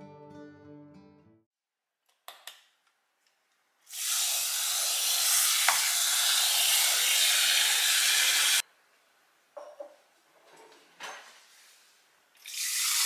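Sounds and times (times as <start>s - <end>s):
steam wand hissing: 3.9s - 8.6s.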